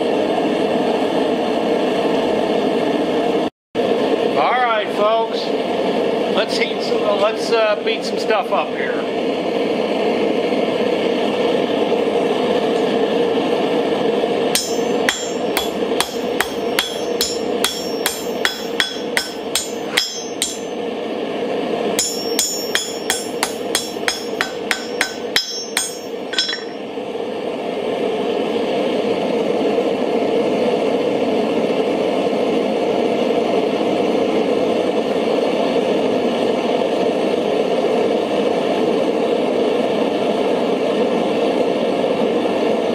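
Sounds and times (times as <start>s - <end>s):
forge burner roaring: 0.0s - 42.9s
hammer striking steel on anvil: 14.5s - 20.8s, 22.0s - 26.9s
anvil ringing: 14.6s - 20.8s, 22.0s - 26.9s.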